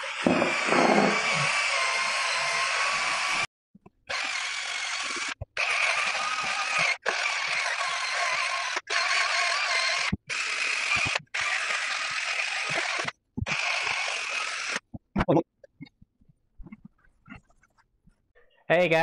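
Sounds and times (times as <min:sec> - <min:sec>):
cordless drill motor whirring: 0:00.0 - 0:03.5, 0:04.1 - 0:14.8.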